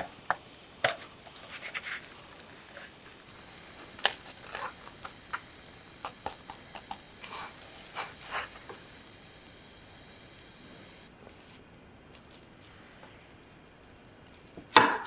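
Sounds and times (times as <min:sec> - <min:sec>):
spatula scraping a frying pan: 0:00.9 - 0:03.0.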